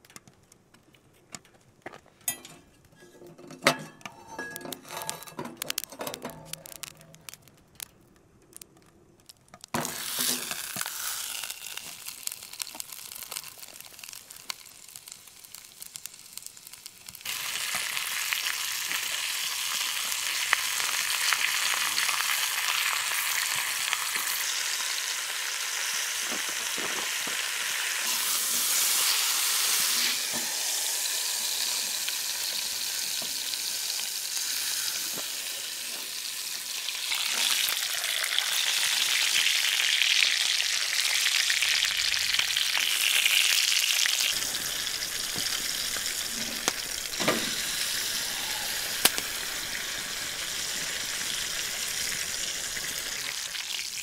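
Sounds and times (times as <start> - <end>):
steak sizzling in skillet: 4.2 - 7.4, 9.7 - 54.0.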